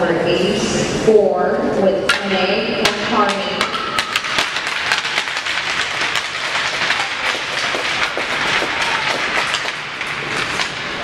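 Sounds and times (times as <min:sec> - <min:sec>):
crowd noise: 0:00.0 - 0:11.0
spectators clapping: 0:04.0 - 0:10.8.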